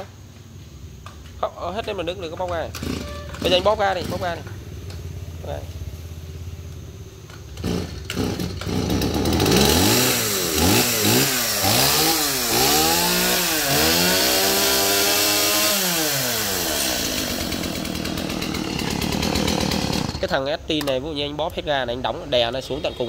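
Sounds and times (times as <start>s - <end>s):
chainsaw revving: 2.6s - 4.5s, 7.5s - 20.4s.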